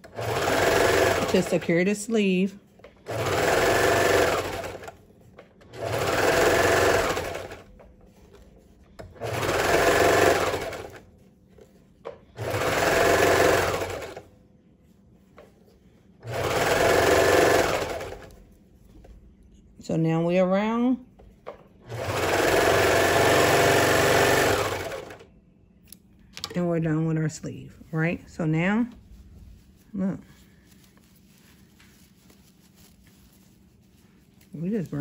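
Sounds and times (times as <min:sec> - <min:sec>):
overlock machine stitching: 0:00.0 - 0:01.8, 0:03.0 - 0:05.0, 0:05.6 - 0:07.7, 0:09.0 - 0:11.0, 0:12.4 - 0:14.2, 0:16.2 - 0:18.3, 0:21.8 - 0:25.2.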